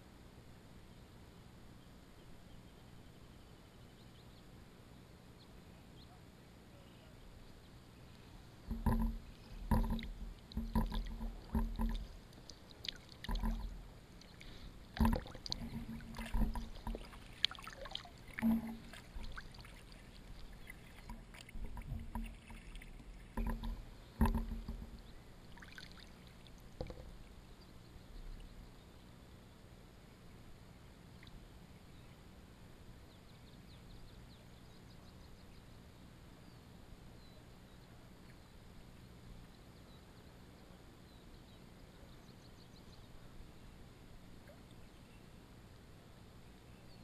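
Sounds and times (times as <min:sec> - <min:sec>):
kayak paddle splashing: 0:08.6 - 0:27.2
paddle knocking on hull: 0:08.7 - 0:12.2, 0:13.2 - 0:13.9, 0:15.0 - 0:25.1, 0:26.8 - 0:27.2.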